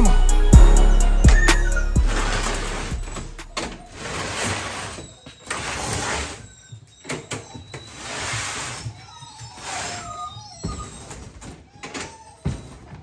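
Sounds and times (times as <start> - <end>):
intro music: 0.0 - 4.0.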